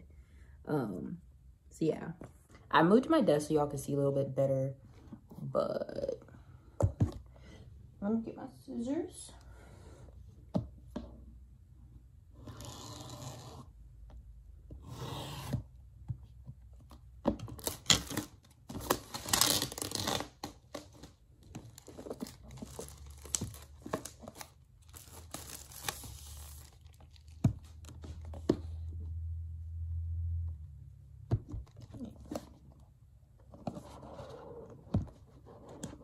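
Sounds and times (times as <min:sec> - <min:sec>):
scissors cutting packaging: 0:17.6 - 0:21.0
plastic wrap tearing and crinkling: 0:17.6 - 0:27.4.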